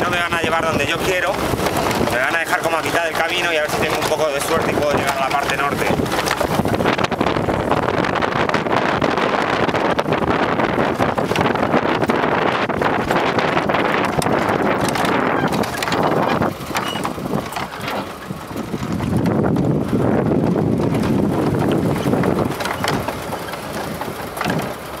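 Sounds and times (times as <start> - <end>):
truck engine running: 0.0 - 25.0
wind buffeting microphone: 0.0 - 25.0
knocks and rattles from wooden bed: 3.7 - 9.4, 10.9 - 25.0.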